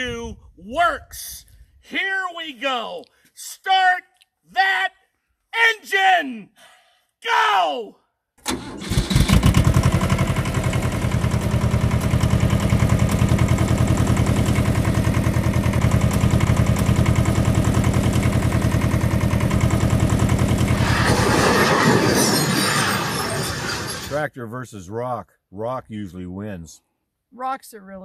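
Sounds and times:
tractor engine chugging: 8.5s - 21.0s.

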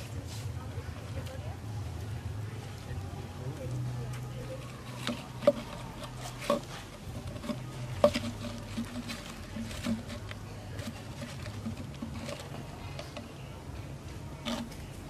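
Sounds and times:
low steady hum: 0.0s - 15.0s
twigs crackling and snapping: 3.6s - 13.3s.

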